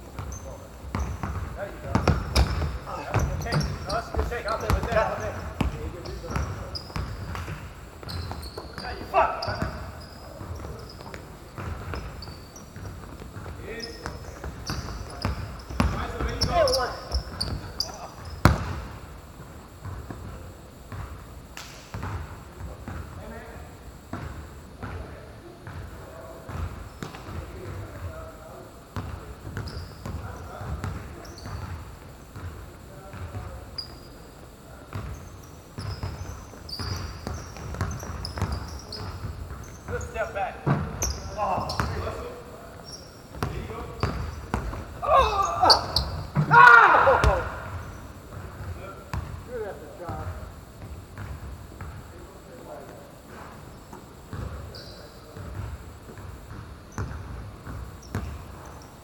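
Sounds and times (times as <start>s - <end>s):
basketball dribbling: 0.2s - 19.0s, 35.8s - 42.2s, 43.3s - 49.5s, 50.1s - 52.1s, 54.3s - 54.7s, 55.4s - 58.8s
short high squeaks: 8.0s - 11.1s, 11.9s - 12.7s, 13.7s - 18.5s, 35.1s - 40.2s, 45.5s - 46.4s.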